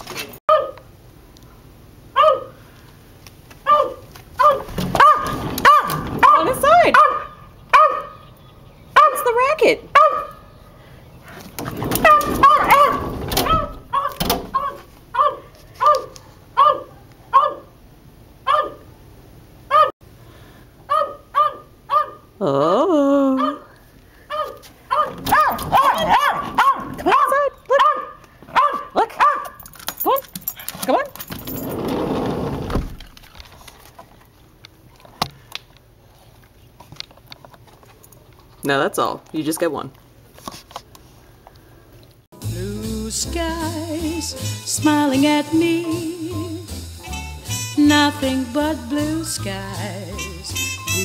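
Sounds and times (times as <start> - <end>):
small dog barking and yipping: 0.5 - 0.8, 2.2 - 2.6, 3.6 - 8.2, 9.0 - 10.4, 12.0 - 17.7, 18.4 - 18.9, 19.7 - 20.0, 20.9 - 22.3, 23.4 - 23.7, 24.3 - 31.1.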